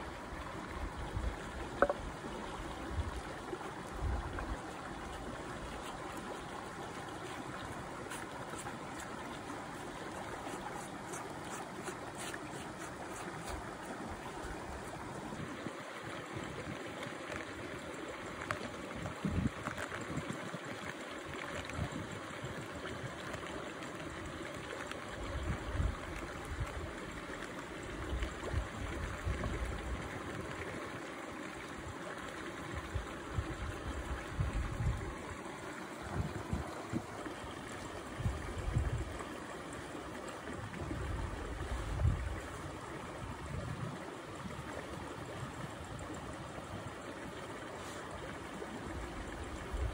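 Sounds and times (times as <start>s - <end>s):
stream water rushing: 0.0s - 49.9s.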